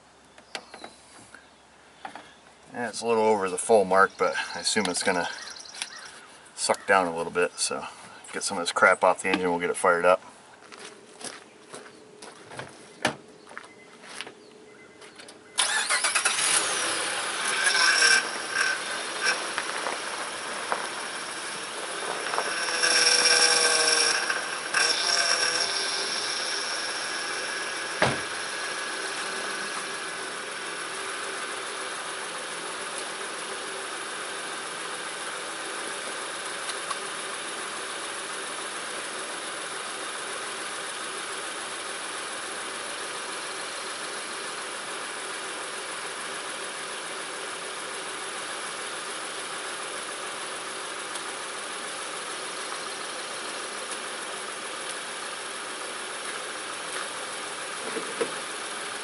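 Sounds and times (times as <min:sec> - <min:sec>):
car engine idling: 0:01.4 - 0:10.8, 0:14.7 - 0:59.0
high whine: 0:15.6 - 0:40.8
sharp knock: 0:28.0 - 0:28.3.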